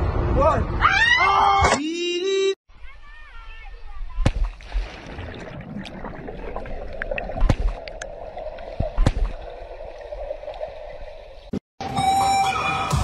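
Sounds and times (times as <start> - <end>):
bubbles gurgling: 4.6 - 11.5
muffled underwater rushing: 4.6 - 11.6.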